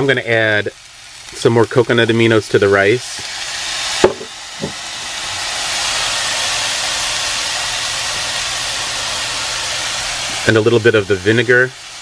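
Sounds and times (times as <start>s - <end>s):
food sizzling in frying pan: 0.0s - 12.0s
soft knock: 4.0s - 4.8s.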